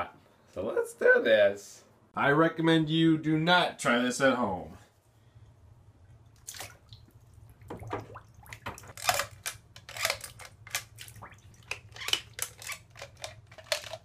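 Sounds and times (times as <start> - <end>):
bathtub water splashing: 6.0 - 14.0.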